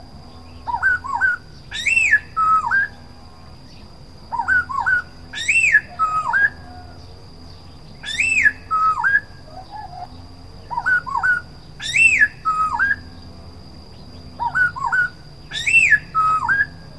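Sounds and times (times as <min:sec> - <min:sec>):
bird singing whistled phrases: 0:00.7 - 0:03.0, 0:04.4 - 0:06.9, 0:08.0 - 0:10.1, 0:10.7 - 0:13.2, 0:14.4 - 0:16.8.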